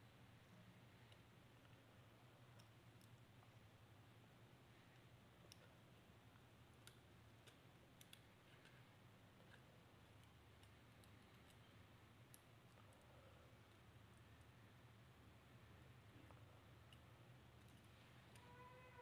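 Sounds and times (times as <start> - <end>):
faint small clicks: 4.9 - 14.5.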